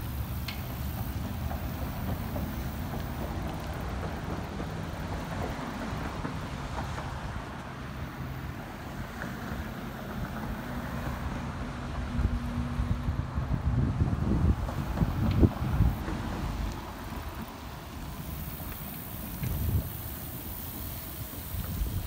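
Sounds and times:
car traffic hiss: 0.0 - 22.0
wind buffeting microphone: 11.9 - 22.0.

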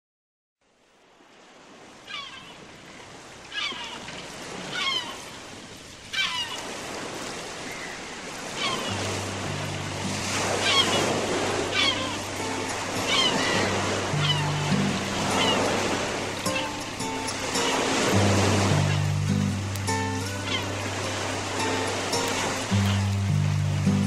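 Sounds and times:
sea surf: 0.6 - 24.0
low sustained music notes: 9.0 - 24.0.

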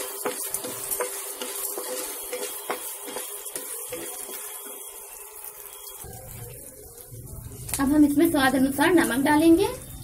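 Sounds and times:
spatula scraping pan: 0.0 - 5.1
light sizzle: 0.0 - 10.0.

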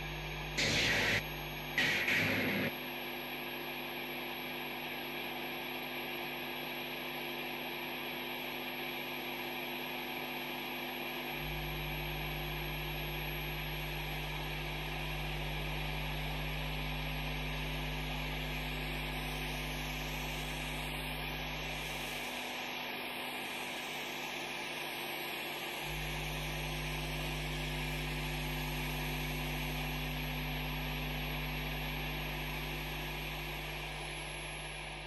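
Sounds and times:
low electrical hum: 0.0 - 2.7.

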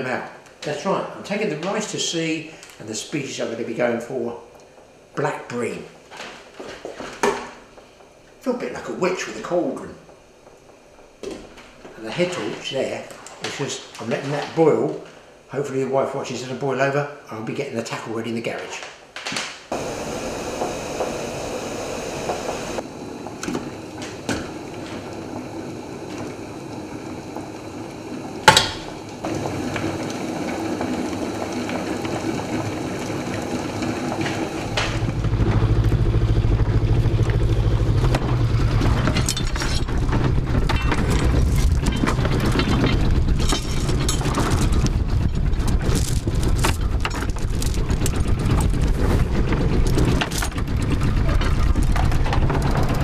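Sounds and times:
rice boiling in saucepan: 19.7 - 35.4
diesel boat engine rumbling: 19.7 - 53.0.

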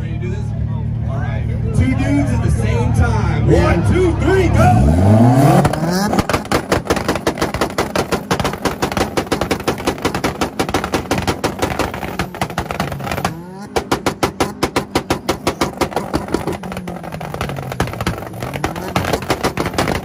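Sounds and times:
car engine pops and bangs: 5.5 - 20.0.

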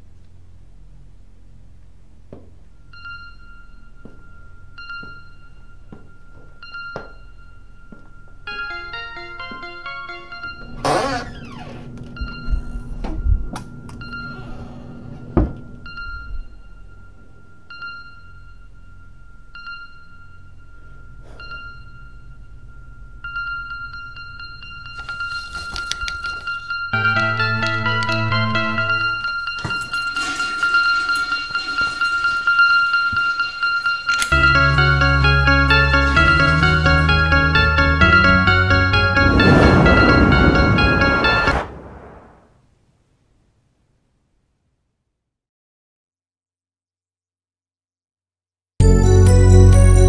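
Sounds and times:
low steady hum: 0.0 - 9.1, 10.2 - 30.1
bright ringing notes: 2.7 - 42.1
high electronic tone: 25.0 - 42.4
low drone: 34.3 - 42.4
rising rush of noise: 38.9 - 42.5.

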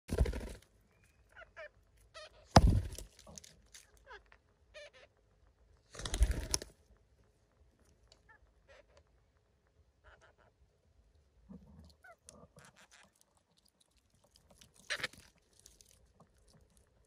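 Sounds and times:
rustling thumps: 2.5 - 3.4.

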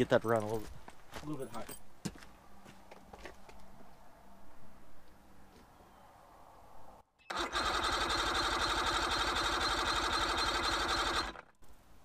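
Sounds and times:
starter cranking outboard engine: 7.3 - 11.5.

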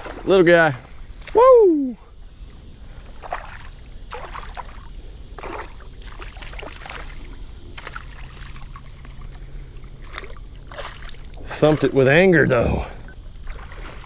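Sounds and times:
river water splashing: 0.0 - 14.0
small fish splash: 10.0 - 12.0.

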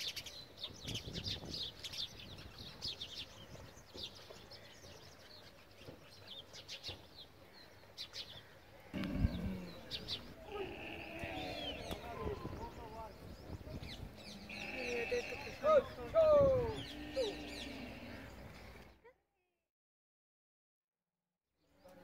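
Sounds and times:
small birds chirping: 0.0 - 19.0
animal calling: 8.9 - 13.0, 13.8 - 18.9.

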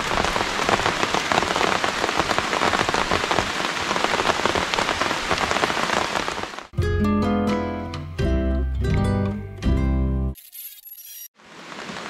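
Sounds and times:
rain falling: 0.0 - 6.7, 11.4 - 12.0.

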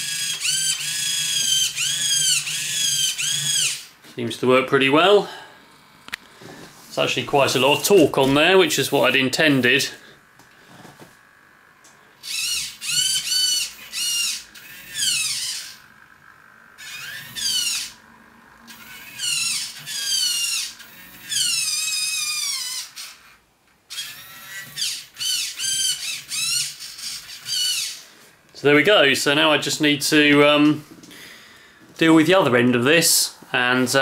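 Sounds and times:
servo motor whining: 0.0 - 4.1, 5.6 - 28.2.

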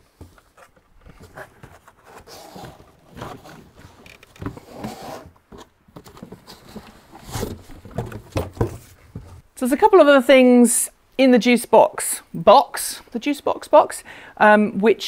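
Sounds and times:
cable rustling and knocking: 0.1 - 9.5
cardboard scraping: 0.2 - 9.5.

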